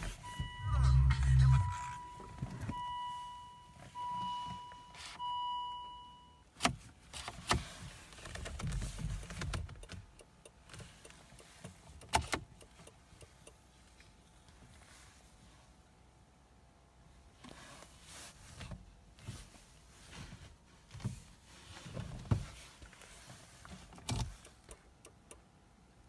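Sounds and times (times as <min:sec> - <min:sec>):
car warning chime beeps: 0:00.0 - 0:06.5.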